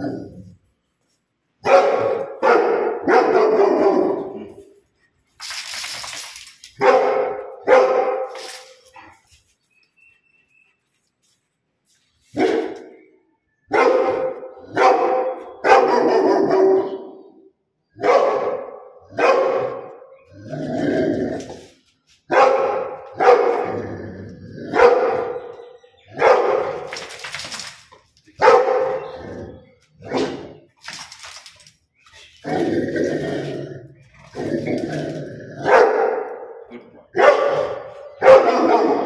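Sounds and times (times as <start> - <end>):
dog barking: 1.6 - 4.6, 6.8 - 8.3, 12.4 - 13.0, 13.7 - 17.4, 18.0 - 20.0, 22.3 - 23.7, 24.7 - 26.9, 28.4 - 29.1, 35.6 - 39.0.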